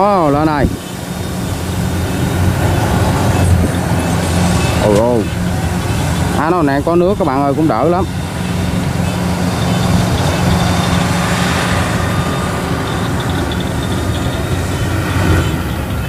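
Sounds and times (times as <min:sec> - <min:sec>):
combine harvester engine droning: 0:00.0 - 0:16.0.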